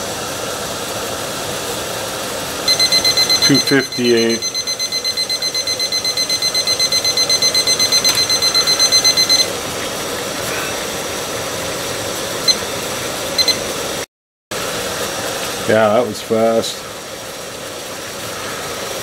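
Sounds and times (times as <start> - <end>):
rapid electronic alarm beeping: 2.7 - 9.5, 13.4 - 13.6
water boiling in a pot: 9.5 - 14.0, 14.6 - 19.0.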